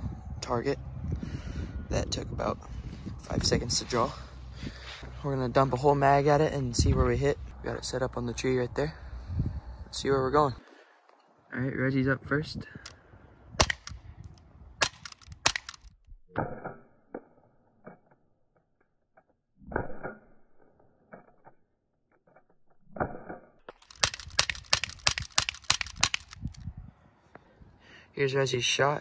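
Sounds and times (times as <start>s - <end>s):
airsoft pistol shots: 13.6s - 14.0s, 14.8s - 15.8s, 23.0s - 26.4s.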